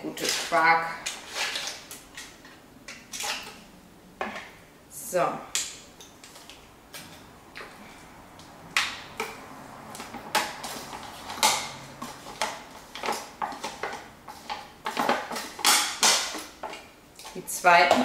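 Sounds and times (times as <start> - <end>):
spoon scraping a carton: 0.2 - 1.9.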